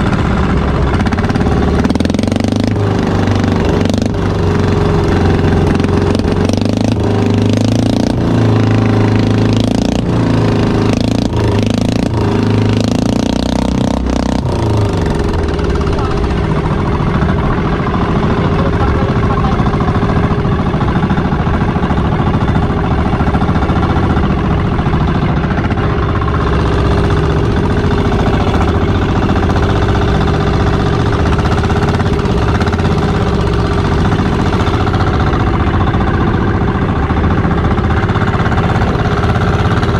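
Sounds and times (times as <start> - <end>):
boat engine rapid pulsing: 0.0 - 39.9.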